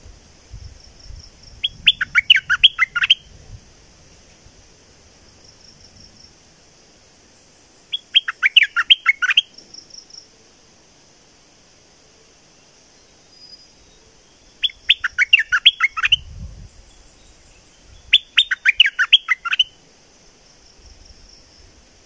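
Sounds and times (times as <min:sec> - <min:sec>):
high insect drone: 0:00.0 - 0:22.0
bird singing sweeping notes: 0:01.6 - 0:03.3, 0:07.9 - 0:09.5, 0:13.4 - 0:16.3, 0:17.2 - 0:19.8.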